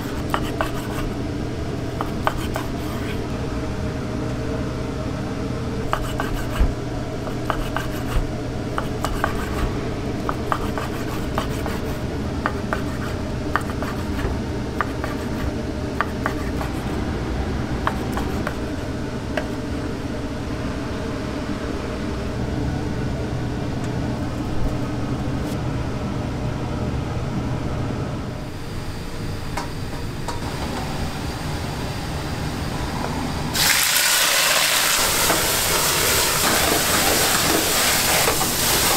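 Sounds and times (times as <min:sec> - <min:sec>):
steady low hum: 0:00.0 - 0:33.6.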